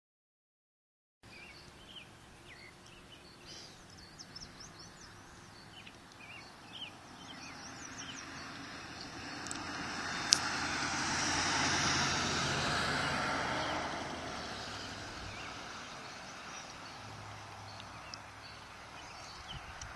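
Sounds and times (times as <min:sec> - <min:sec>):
birds chirping: 0:01.2 - 0:19.9
pickup truck passing: 0:06.4 - 0:19.9.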